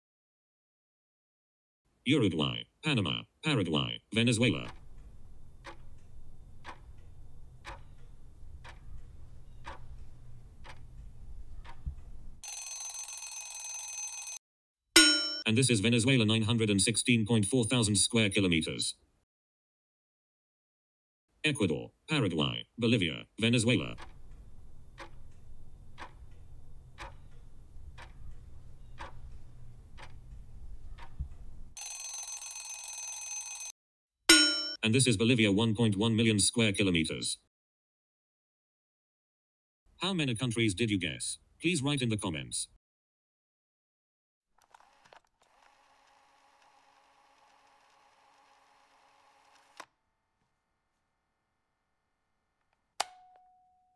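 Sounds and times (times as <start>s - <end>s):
timer ticking: 4.3s - 12.6s, 23.6s - 32.4s
loud ringing alarm tone: 12.4s - 14.4s, 31.8s - 33.7s
bright steady ringing: 15.0s - 15.5s.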